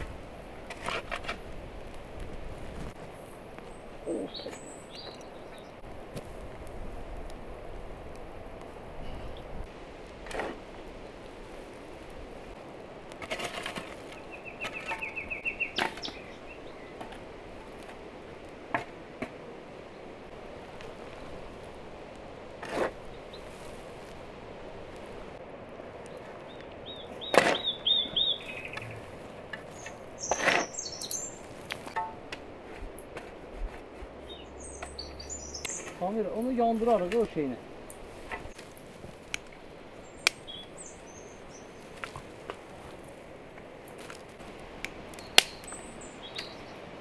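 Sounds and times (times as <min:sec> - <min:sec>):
shovel scraping earth: 0:00.6 - 0:01.6, 0:10.2 - 0:10.7, 0:13.2 - 0:15.2, 0:22.6 - 0:23.8, 0:28.8 - 0:32.0
birds chirping: 0:03.4 - 0:05.9, 0:13.8 - 0:17.6, 0:25.9 - 0:32.2, 0:34.0 - 0:38.7, 0:39.4 - 0:42.9, 0:45.1 - 0:47.0.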